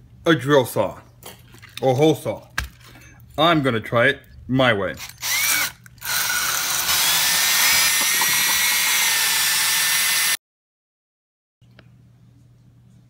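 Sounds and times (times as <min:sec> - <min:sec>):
cordless drill whine: 0:05.1 - 0:10.4.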